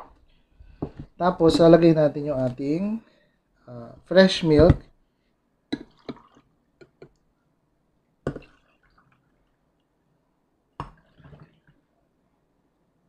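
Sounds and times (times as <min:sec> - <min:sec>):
milk splashing into glass: 0:05.8 - 0:06.5.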